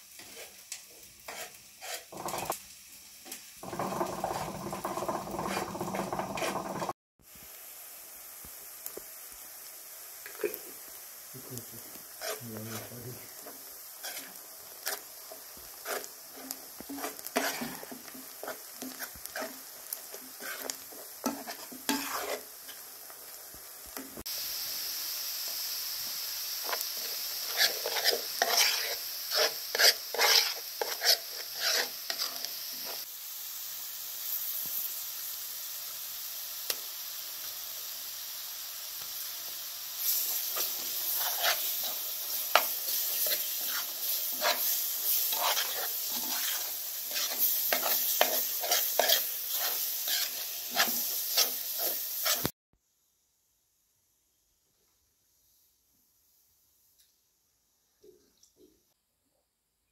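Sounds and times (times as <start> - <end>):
onions sizzling: 0.0 - 52.6
metal spoon scraping pot: 1.3 - 2.5, 3.6 - 6.9, 20.4 - 22.4, 27.5 - 32.4, 45.3 - 52.5.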